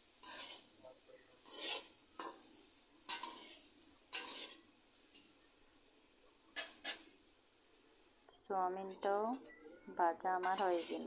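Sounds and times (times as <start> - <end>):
spatula scraping a pan: 0.0 - 5.5, 6.5 - 7.3, 10.4 - 11.0
food sizzling in oil: 0.0 - 11.0.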